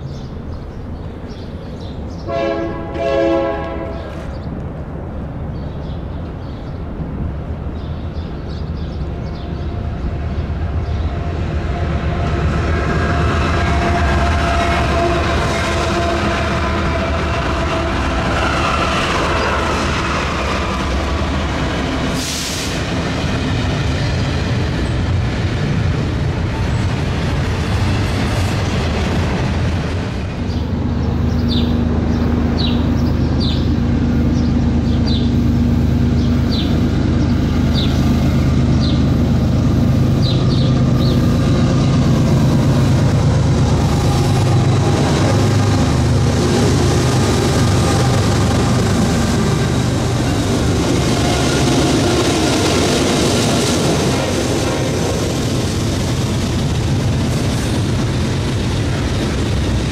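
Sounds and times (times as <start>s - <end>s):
diesel locomotives droning: 0.0s - 59.9s
train wheels clattering on rails: 38.7s - 59.9s.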